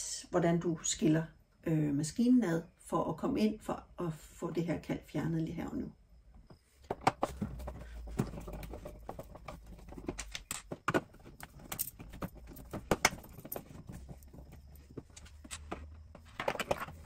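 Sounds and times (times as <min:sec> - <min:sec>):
hands clicking and knocking plastic: 0:06.8 - 0:17.0.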